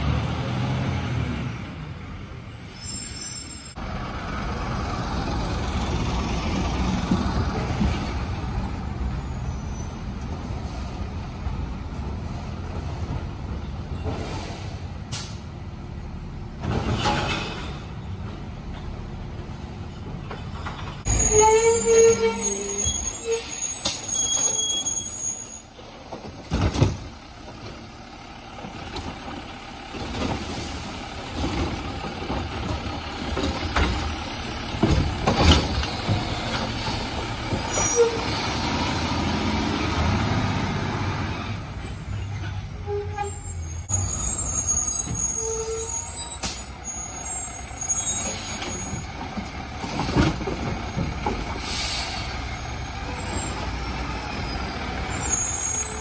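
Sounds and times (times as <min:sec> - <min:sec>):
garbage truck diesel engine: 0:00.0 - 0:56.0
air brake hisses: 0:51.6 - 0:52.4.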